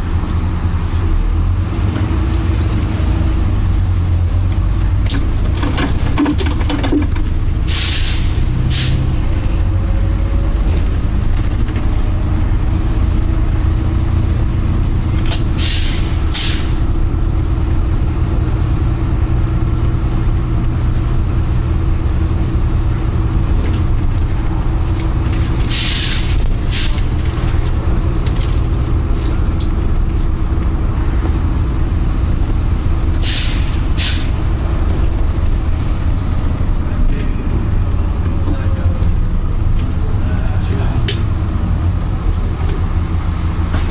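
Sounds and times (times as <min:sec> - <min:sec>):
bus engine and road rumble: 0:00.0 - 0:43.9
air system double hisses: 0:33.2 - 0:34.4.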